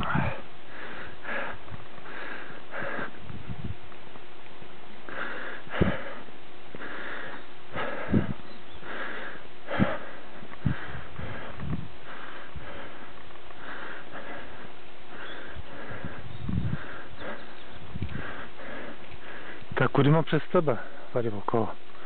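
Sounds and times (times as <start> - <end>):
heavy breathing: 0.0 - 3.6, 5.0 - 19.8, 20.6 - 21.2
dull low thumps: 1.2 - 5.1, 7.8 - 19.9.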